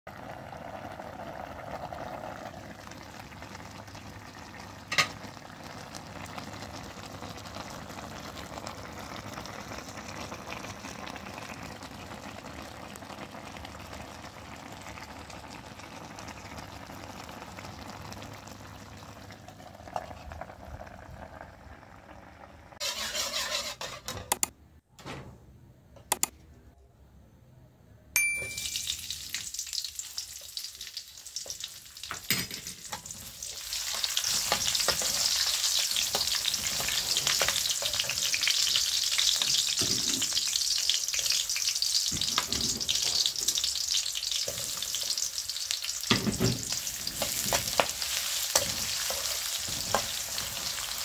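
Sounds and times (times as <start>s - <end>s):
curry bubbling and hissing in a wok: 0.1s - 24.0s, 33.0s - 51.0s
sharp click: 26.0s - 26.4s.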